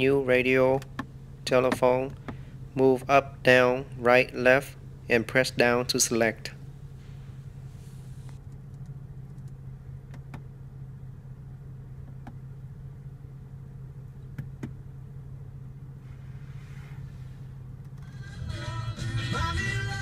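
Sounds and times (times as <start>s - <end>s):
car engine idling: 0.0s - 20.0s
faint dashboard clicks: 0.8s - 2.6s, 8.1s - 10.5s, 12.0s - 12.4s, 14.2s - 14.8s.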